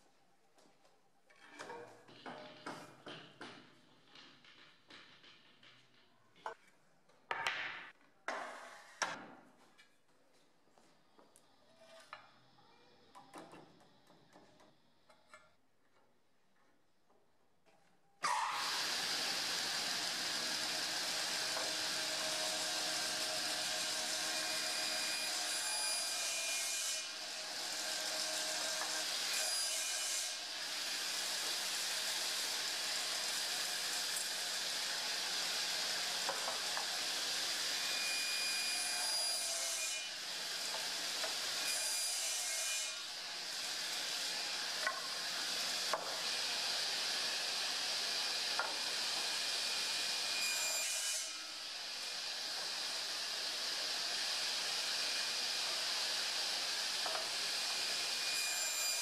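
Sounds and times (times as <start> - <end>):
panel saw whining: 18.3 - 39.1.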